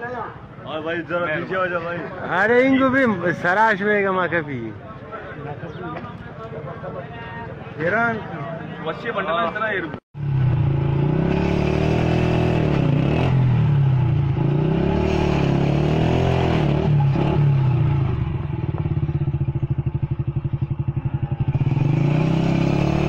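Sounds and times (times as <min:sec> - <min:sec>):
motorcycle engine running: 0:10.2 - 0:23.0.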